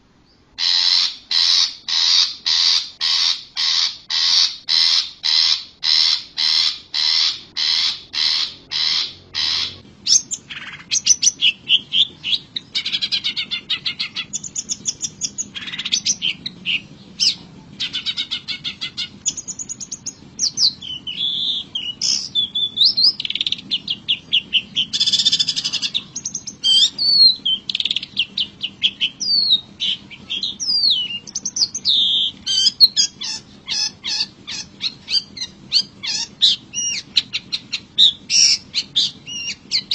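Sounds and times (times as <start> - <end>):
bird chirps and trills: 0.2 - 39.9
shrike harsh calls: 0.6 - 39.9.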